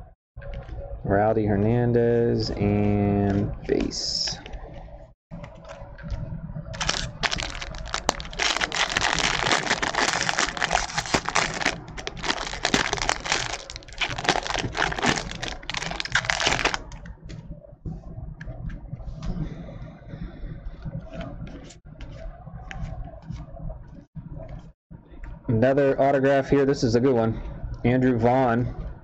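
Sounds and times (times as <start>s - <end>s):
foil wrapper crinkling: 6.8s - 17.0s.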